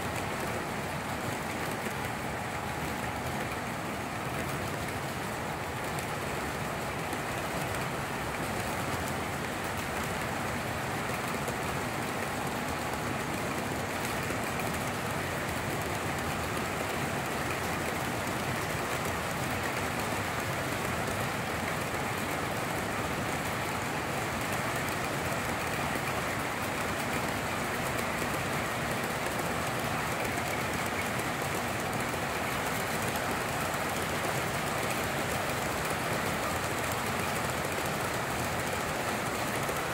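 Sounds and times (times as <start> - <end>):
model train wheels rolling on rails: 0.0 - 39.9.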